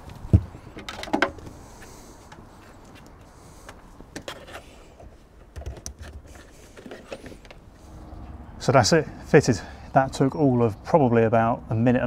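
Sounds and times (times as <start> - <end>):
cable rustling and clattering: 4.1 - 7.7.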